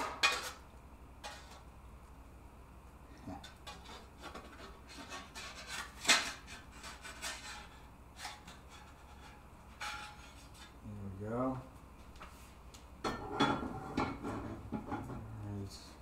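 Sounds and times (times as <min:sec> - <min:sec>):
spatula scraping frying pans: 0:03.4 - 0:10.8, 0:13.1 - 0:15.2.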